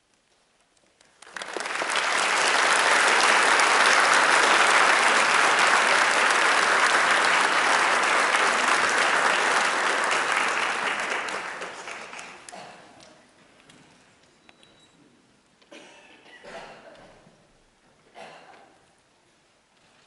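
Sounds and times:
large audience applauding: 1.0 - 12.6.

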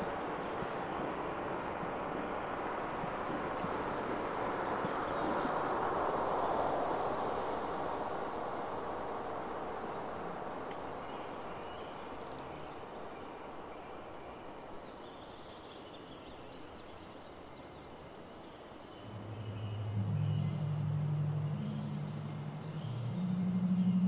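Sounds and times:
soft hiss-like wash: 0.0 - 24.0
faint high wavering tones: 19.0 - 24.0
low sustained synth tones: 19.0 - 24.0.

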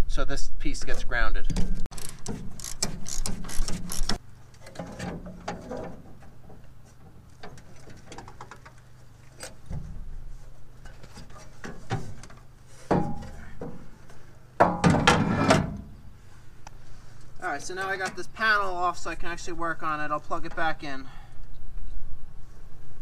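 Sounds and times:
ratchet wrench clicking: 1.9 - 4.2.

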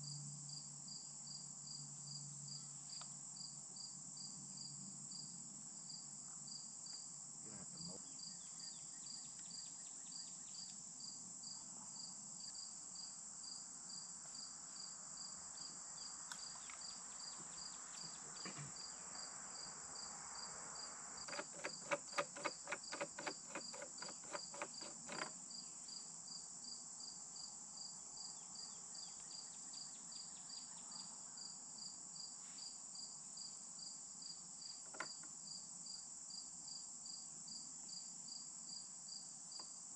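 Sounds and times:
insects chirping: 0.0 - 39.9
run of sharp clicks: 21.2 - 25.3.

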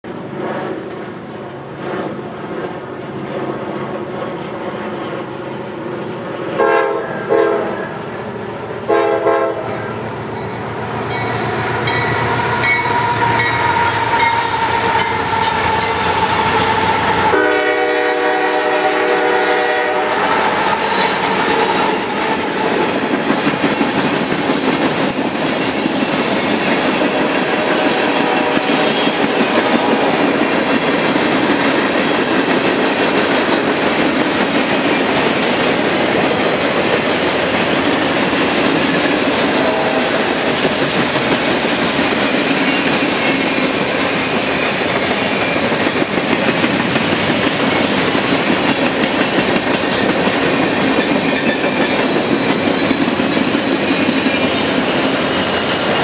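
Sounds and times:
diesel locomotive engines: 0.0 - 56.0
train air horn blasts: 6.6 - 7.9, 8.8 - 22.2, 27.2 - 30.2, 39.4 - 40.5
train wheels clattering over rail joints: 20.6 - 56.0.

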